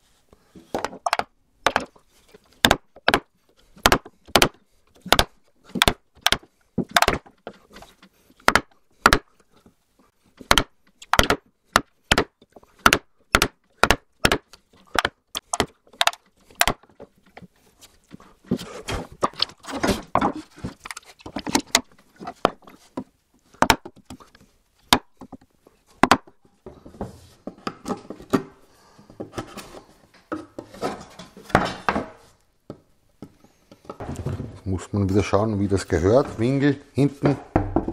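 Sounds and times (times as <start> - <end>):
mallet striking chisel: 10.5 - 16.8.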